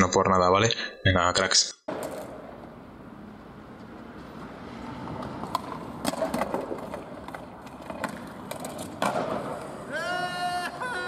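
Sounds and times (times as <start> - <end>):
skateboard clacking: 1.9 - 2.8, 3.6 - 11.0
skateboard wheels rolling on pavement: 1.9 - 11.0.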